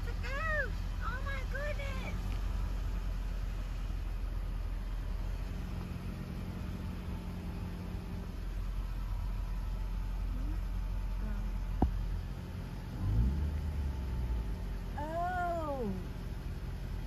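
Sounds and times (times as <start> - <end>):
car engine and tyres rumbling: 0.0 - 17.0
faint hum: 7.9 - 16.4.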